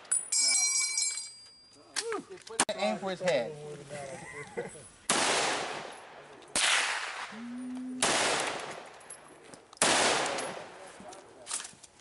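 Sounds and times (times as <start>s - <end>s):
rifle shots echoing: 5.1s - 7.3s, 8.0s - 10.9s.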